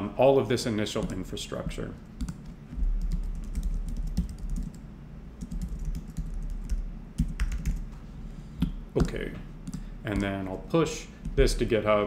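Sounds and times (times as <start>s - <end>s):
computer keyboard typing: 2.2s - 4.8s, 5.4s - 7.9s, 8.6s - 10.5s
low rumble: 2.7s - 3.4s.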